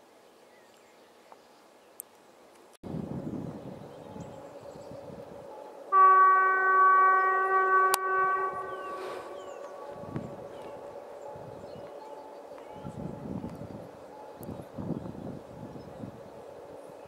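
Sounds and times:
locomotive horn blast: 0:05.9 - 0:11.9.

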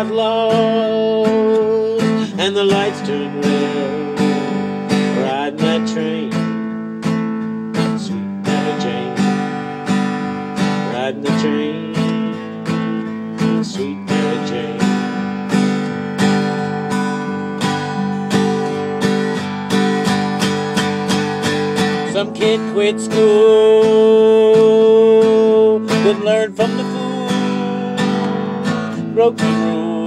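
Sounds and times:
person singing: 0:00.0 - 0:06.6, 0:07.7 - 0:15.6, 0:22.0 - 0:30.0
acoustic guitar strumming: 0:00.0 - 0:30.0.

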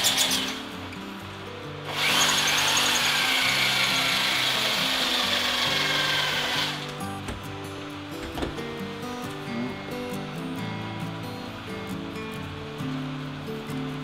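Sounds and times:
handheld drill drilling rivet: 0:00.0 - 0:00.6, 0:01.9 - 0:07.0.

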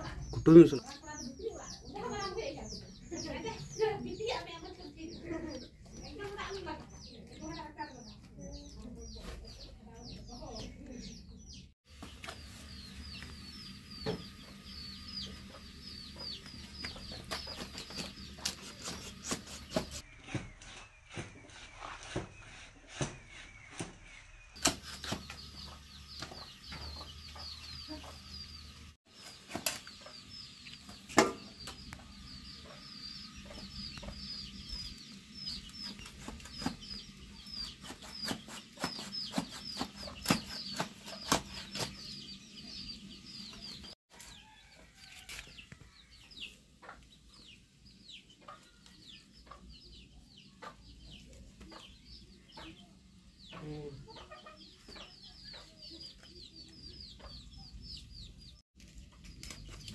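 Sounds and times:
chickens clucking and peeping: 0:00.0 - 0:20.1, 0:25.3 - 0:59.3
blade cutting chicken: 0:17.8 - 0:20.0, 0:37.6 - 0:42.0.

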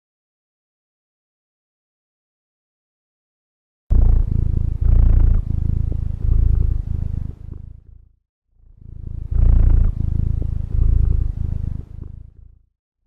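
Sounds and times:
cat purring: 0:03.9 - 0:12.7.

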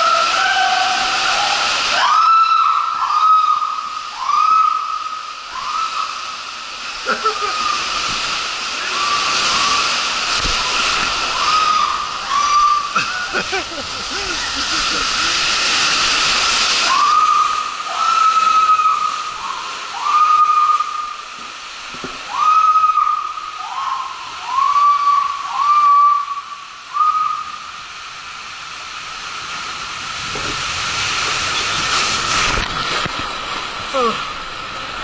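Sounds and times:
water rushing down slide: 0:00.0 - 0:35.0
short high squeals: 0:10.6 - 0:13.2.

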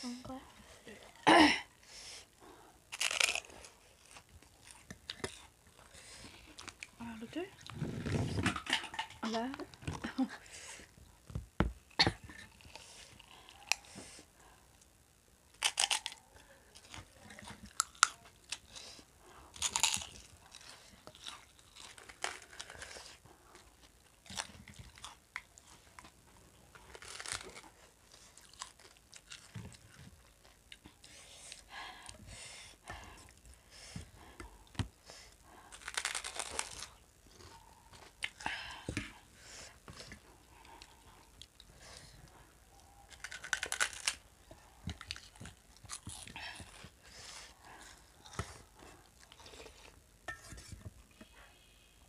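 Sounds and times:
crunchy snack chewing: 0:02.9 - 0:05.8, 0:15.5 - 0:16.2, 0:16.8 - 0:18.8, 0:19.5 - 0:26.1, 0:26.7 - 0:30.8, 0:35.7 - 0:38.4, 0:43.1 - 0:44.3, 0:44.9 - 0:46.9.

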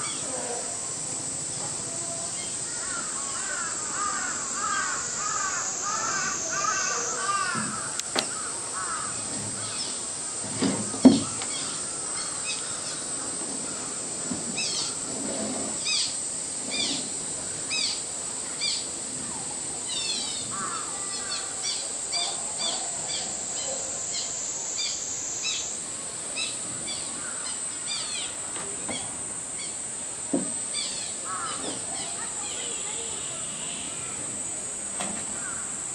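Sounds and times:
high-pitched insect drone: 0:00.0 - 0:10.5, 0:15.7 - 0:35.9
birds chirping: 0:01.5 - 0:10.1.

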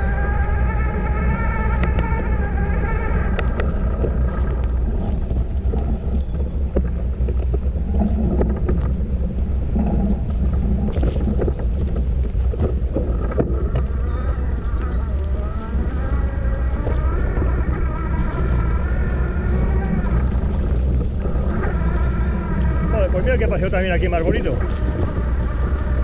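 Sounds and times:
bike knocking and rattling: 0:00.0 - 0:26.0
wind rumbling on microphone: 0:00.0 - 0:26.0.

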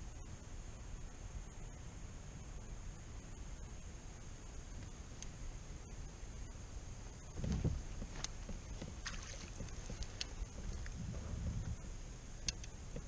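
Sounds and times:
light clicks and taps: 0:07.4 - 0:11.0, 0:12.4 - 0:13.0
water lapping against plastic hull: 0:07.4 - 0:11.9.

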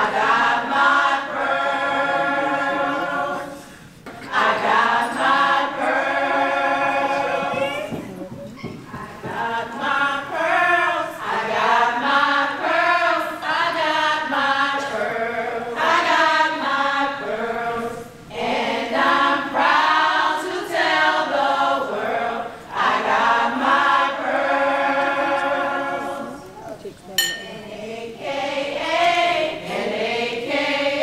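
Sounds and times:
women singing without accompaniment: 0:08.8 - 0:26.5.

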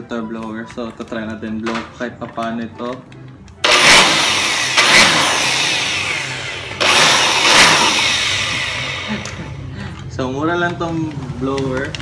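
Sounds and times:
electric blower rushing air: 0:03.6 - 0:09.7.

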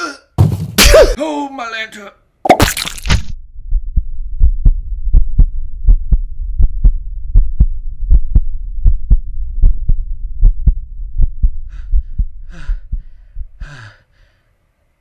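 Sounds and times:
low hum: 0:03.2 - 0:14.0
heartbeat thumps: 0:03.4 - 0:13.8.

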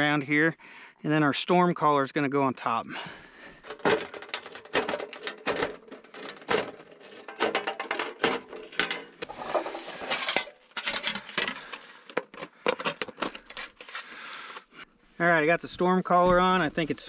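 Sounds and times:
metal clinking and clanking: 0:03.6 - 0:13.4
metal scraping on pipe: 0:06.0 - 0:12.1.

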